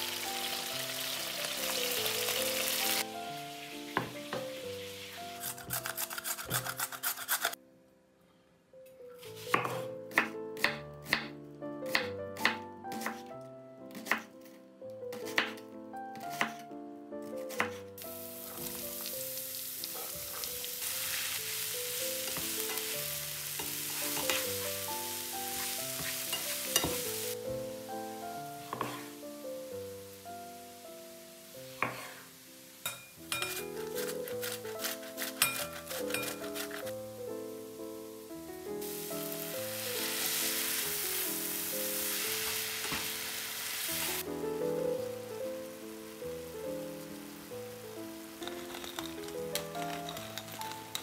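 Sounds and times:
vegetables sizzling in frying pan: 0:00.0 - 0:05.5, 0:18.0 - 0:28.0, 0:30.0 - 0:36.9, 0:38.8 - 0:44.2, 0:45.7 - 0:51.0
background music: 0:00.0 - 0:51.0
spatula scraping and knocking pan: 0:23.6 - 0:24.8, 0:25.6 - 0:27.2, 0:28.6 - 0:29.2, 0:31.8 - 0:32.3.

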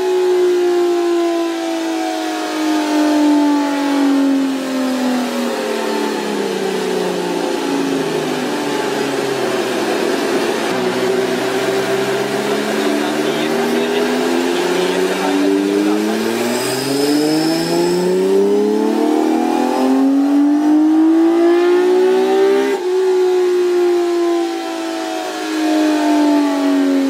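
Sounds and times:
motorcycle engine running: 0:07.4 - 0:18.3.

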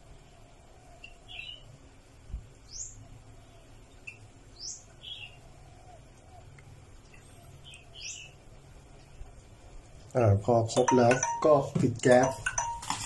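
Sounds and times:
low steady hum: 0:00.0 - 0:13.0
birds chirping: 0:00.2 - 0:10.0.

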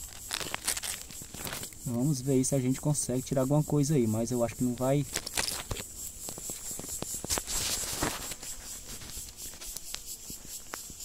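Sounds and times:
insects droning: 0:00.0 - 0:11.0
rustling in dry leaves and stones: 0:00.0 - 0:11.0.

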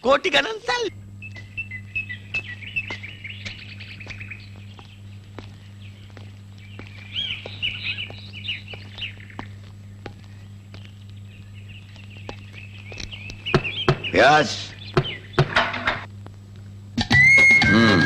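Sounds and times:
birds chirping: 0:00.0 - 0:16.9
low hum: 0:00.6 - 0:18.0.

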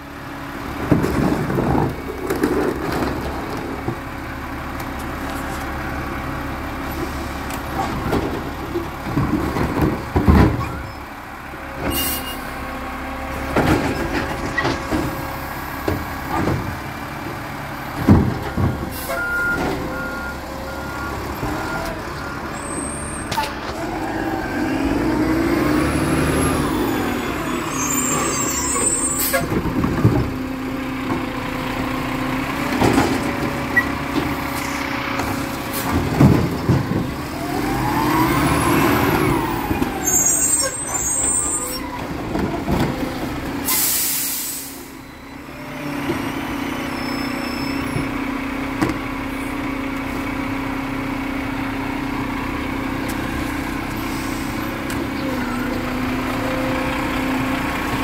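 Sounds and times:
garbage truck diesel engine: 0:00.0 - 0:58.0
air brake hiss: 0:11.9 - 0:12.4, 0:43.7 - 0:45.0, 0:54.0 - 0:54.6
hydraulic whines: 0:18.9 - 0:29.7, 0:37.4 - 0:42.1.

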